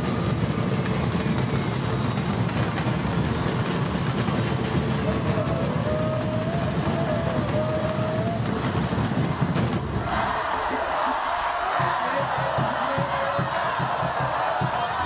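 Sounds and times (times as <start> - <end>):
crowd murmur: 4.2 - 15.0.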